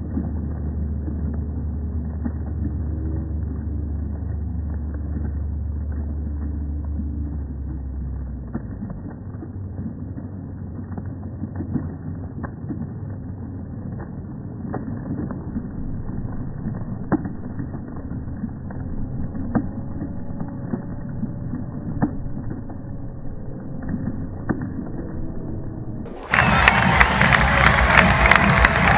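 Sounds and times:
slowed crowd rumble: 0.0s - 28.9s
slowed hand claps: 26.2s - 28.9s.

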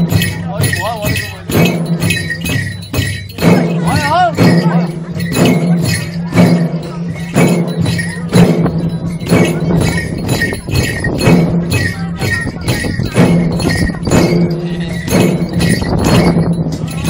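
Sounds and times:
barrel drums playing rhythm: 0.0s - 17.0s.

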